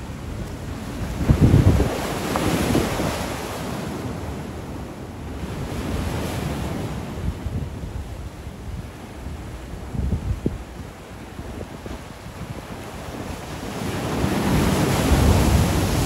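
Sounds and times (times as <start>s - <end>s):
wind buffeting microphone: 0.0s - 4.5s, 5.4s - 16.0s
sea waves breaking over rocks: 0.0s - 16.0s.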